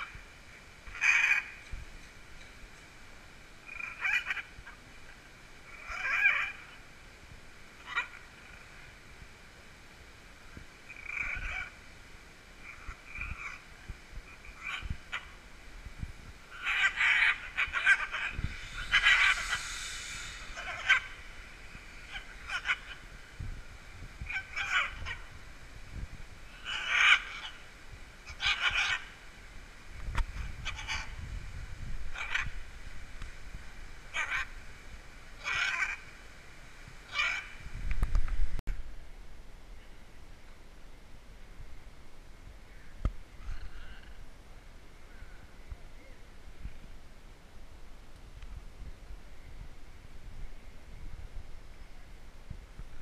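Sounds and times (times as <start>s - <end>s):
macaws squawking: 0.9s - 1.6s, 3.6s - 4.6s, 5.7s - 6.7s, 7.8s - 8.2s, 10.9s - 11.8s, 14.4s - 15.4s, 16.5s - 23.4s, 24.2s - 25.4s, 26.5s - 27.7s, 28.3s - 29.2s, 30.6s - 31.2s, 34.2s - 34.5s, 35.4s - 36.0s, 37.1s - 37.6s.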